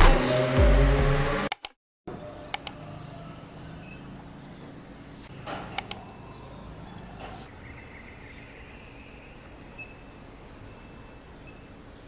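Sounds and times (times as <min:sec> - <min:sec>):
sharp clicks: 0:01.5 - 0:01.8, 0:02.5 - 0:02.8, 0:05.8 - 0:06.0.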